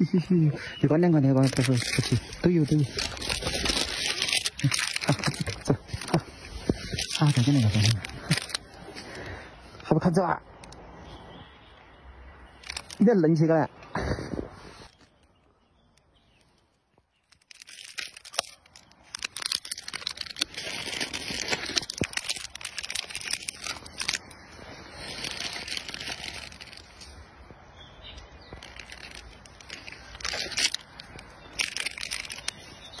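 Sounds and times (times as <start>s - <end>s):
plastic wrapping crinkling and tearing: 0.9s - 9.1s, 12.6s - 13.1s, 17.1s - 27.3s, 28.4s - 33.0s.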